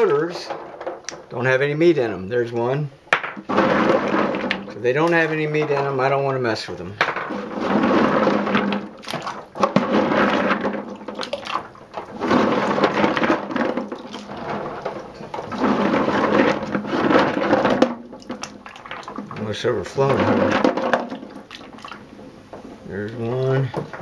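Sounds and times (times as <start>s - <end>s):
nuts knocking together: 0.0s - 1.4s, 2.4s - 6.0s, 7.0s - 19.4s
water sloshing in a sink: 3.4s - 24.0s.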